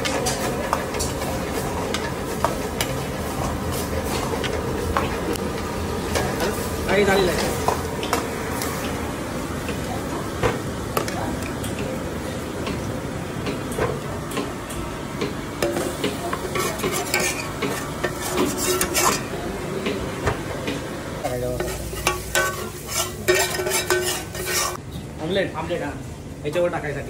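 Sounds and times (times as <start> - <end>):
food sizzling: 0.0 - 11.7, 15.6 - 19.4, 21.2 - 24.8
metal ladle scraping a pan: 16.5 - 19.3, 21.6 - 24.8.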